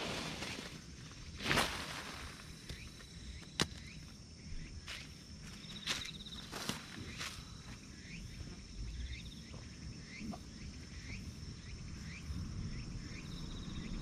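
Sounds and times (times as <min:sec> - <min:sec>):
insects chirring: 0:00.0 - 0:14.0
low rumble: 0:10.9 - 0:14.0.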